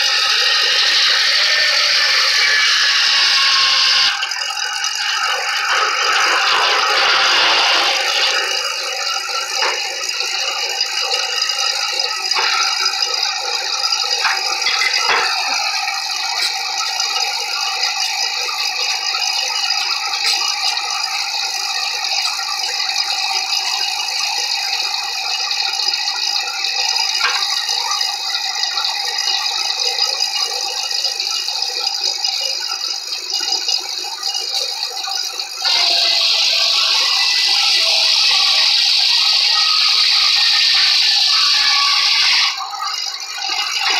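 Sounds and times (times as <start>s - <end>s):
saw blade cutting hiss: 0.0s - 21.0s, 35.6s - 42.7s
sawmill mechanical rattle: 0.0s - 43.9s.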